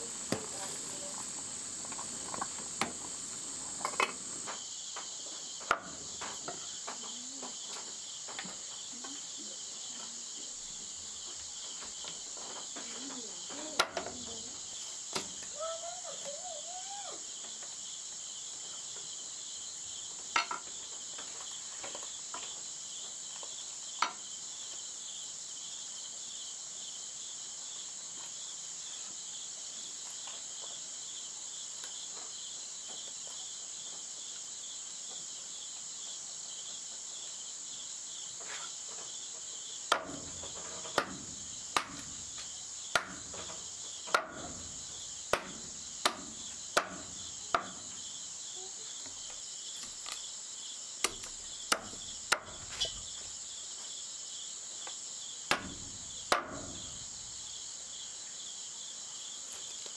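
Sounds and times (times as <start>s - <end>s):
insects chirring: 0.0s - 59.9s
sharp knocks: 39.9s - 48.0s, 51.0s - 53.0s, 55.5s - 57.1s.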